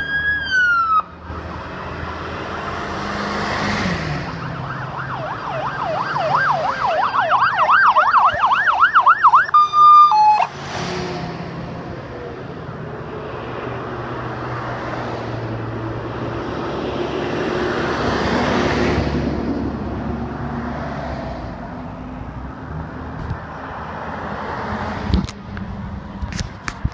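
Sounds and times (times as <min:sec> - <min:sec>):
emergency siren yelping: 0:00.0 - 0:01.7, 0:04.1 - 0:10.6
vehicles passing: 0:00.0 - 0:26.9.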